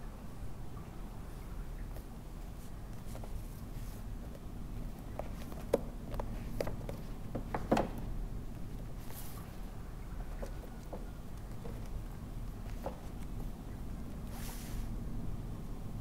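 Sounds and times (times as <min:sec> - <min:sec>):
low room hum: 0:00.0 - 0:16.0
books rustling: 0:02.0 - 0:14.9
books knocking on wooden shelf: 0:05.3 - 0:08.1.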